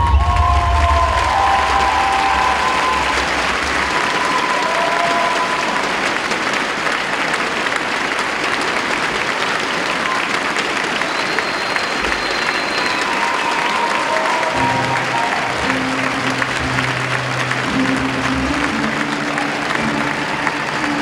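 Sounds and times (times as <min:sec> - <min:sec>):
audience applauding: 0:00.0 - 0:21.0
music with bass: 0:14.6 - 0:21.0.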